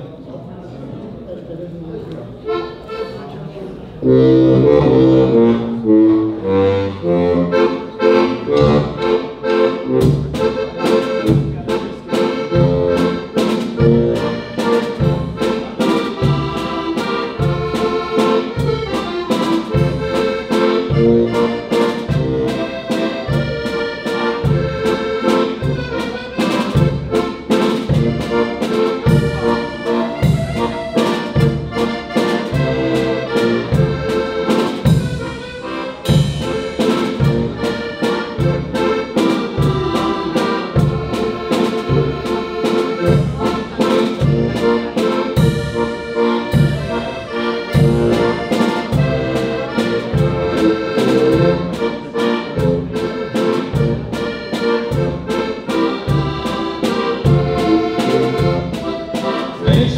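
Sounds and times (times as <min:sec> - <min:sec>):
button accordion playing tune: 0:02.4 - 0:59.9
drum kit steady beat: 0:08.2 - 0:59.9.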